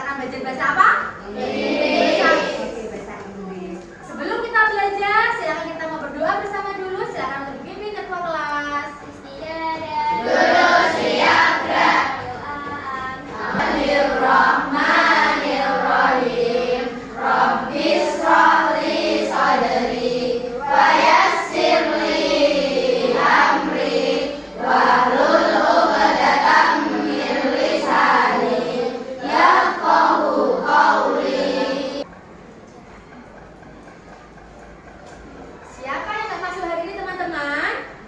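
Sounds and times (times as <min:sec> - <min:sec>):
children reciting in unison: 0:01.1 - 0:03.0, 0:09.0 - 0:32.1.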